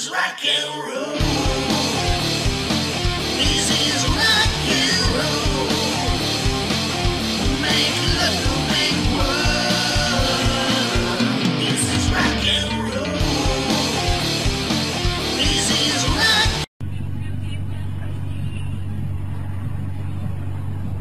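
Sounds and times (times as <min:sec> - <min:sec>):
song with singing: 0:00.0 - 0:16.7
steady drum beat: 0:01.2 - 0:16.6.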